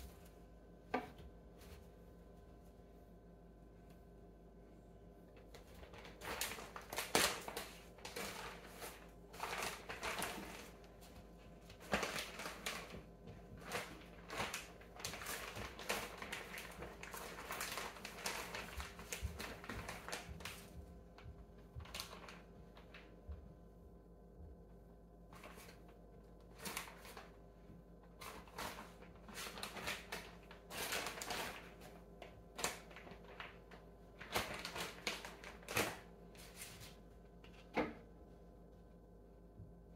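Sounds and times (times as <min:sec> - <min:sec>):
plastic packaging crinkling: 0:05.5 - 0:10.9, 0:11.6 - 0:20.7, 0:21.8 - 0:23.1, 0:26.5 - 0:27.4, 0:28.1 - 0:37.0.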